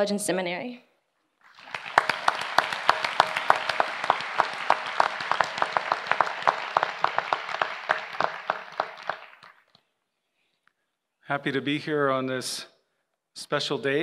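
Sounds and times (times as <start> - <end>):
large audience applauding: 1.4 - 9.7.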